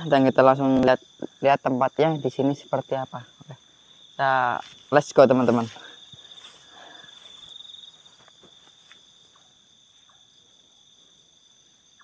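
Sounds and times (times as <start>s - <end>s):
night insects trilling: 0.0s - 12.0s
rustling grass: 3.8s - 9.5s
footsteps through tall grass: 3.8s - 9.6s.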